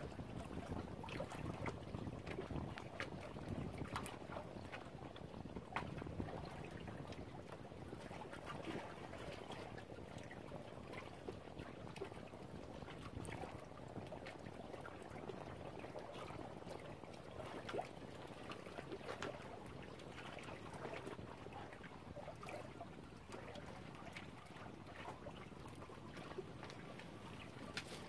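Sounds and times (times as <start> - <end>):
lake water lapping at shore: 0.0 - 28.0.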